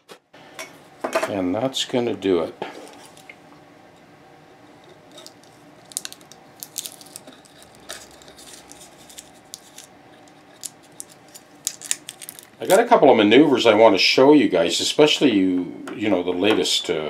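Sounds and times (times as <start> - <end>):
tape rustling: 5.1 - 12.8.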